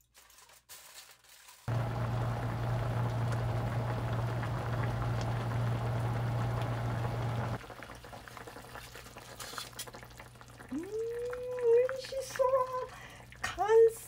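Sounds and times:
foil crinkling: 0:00.0 - 0:01.7, 0:08.8 - 0:10.0
steady low hum: 0:01.7 - 0:07.6
broth bubbling: 0:01.7 - 0:08.8, 0:10.0 - 0:13.4.

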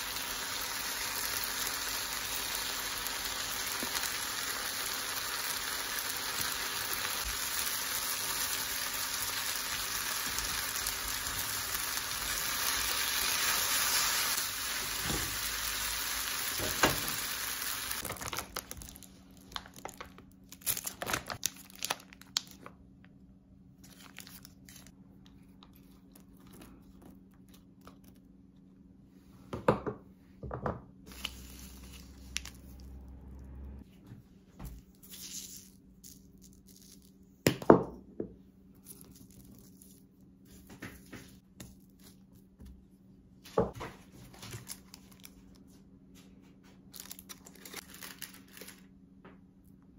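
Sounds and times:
noodles sizzling in a frying pan: 0:00.0 - 0:18.6
plastic packaging crinkling and tearing: 0:18.0 - 0:22.8, 0:23.8 - 0:24.9, 0:44.3 - 0:45.6, 0:46.9 - 0:48.9.

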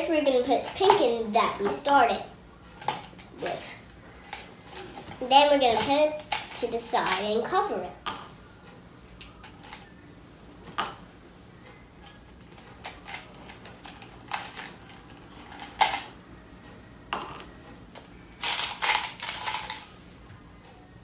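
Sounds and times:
candies rattling into plastic cup: 0:18.4 - 0:19.8.

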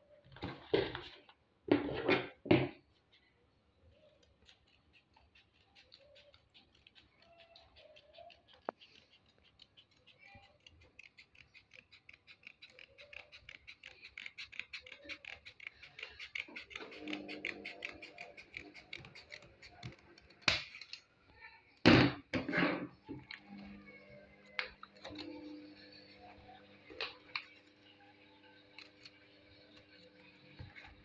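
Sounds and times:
scissors snipping paper: 0:04.2 - 0:21.1, 0:24.5 - 0:26.0, 0:27.0 - 0:31.0.

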